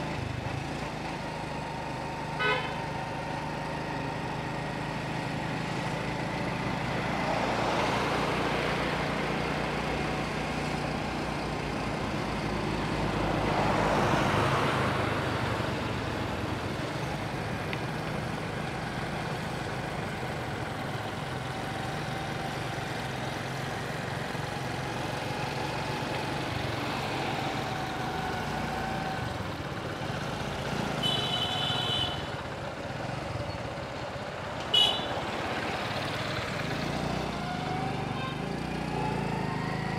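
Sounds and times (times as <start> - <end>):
road and wind rush: 0.0 - 39.9
high-pitched horn toot: 2.4 - 2.8.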